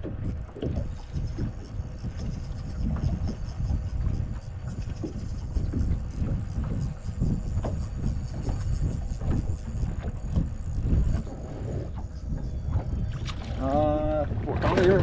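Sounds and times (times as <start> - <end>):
water slapping against boat hull: 0.0 - 15.0
wind rumble on microphone: 0.0 - 15.0.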